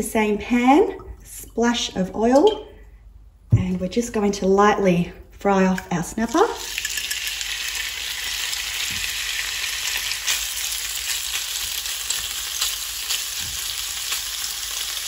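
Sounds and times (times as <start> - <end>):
fish sizzling in frying pan: 6.6 - 15.0.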